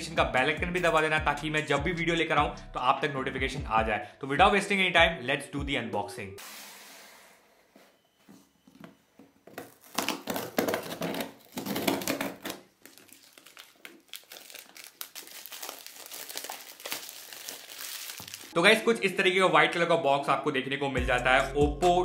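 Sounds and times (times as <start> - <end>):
cardboard and tape tearing: 9.5 - 18.6
plastic shrink-wrap crinkling: 9.5 - 18.6.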